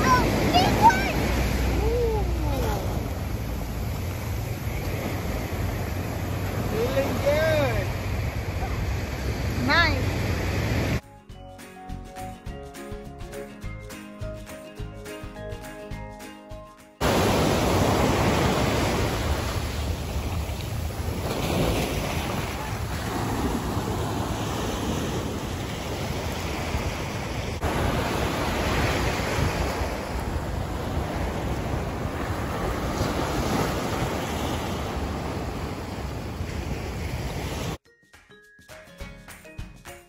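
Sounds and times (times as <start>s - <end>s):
ocean surf breaking on beach: 0.0s - 11.0s, 17.0s - 37.8s
background music: 11.0s - 17.4s, 37.8s - 40.0s
wind rumbling on microphone: 17.0s - 37.8s.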